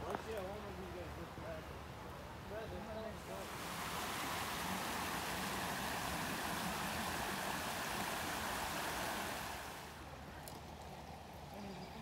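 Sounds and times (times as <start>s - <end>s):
creek water rushing over rocks: 3.1s - 10.2s.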